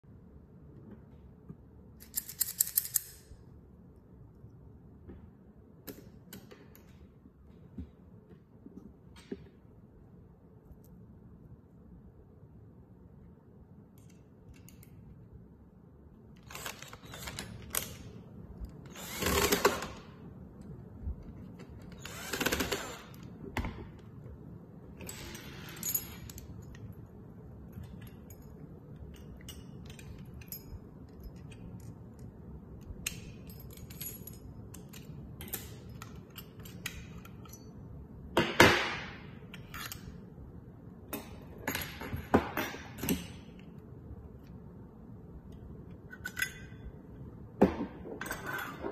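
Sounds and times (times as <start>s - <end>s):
metal lock parts clicking and scraping: 2.0s - 3.4s, 16.3s - 19.8s, 24.9s - 38.0s, 39.4s - 40.4s, 41.1s - 43.8s, 45.9s - 47.3s, 48.0s - 48.9s.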